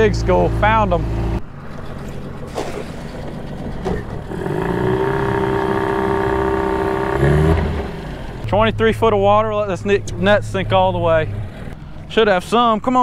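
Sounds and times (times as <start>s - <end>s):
outboard motor running: 0.0s - 7.1s
wind: 0.0s - 13.0s.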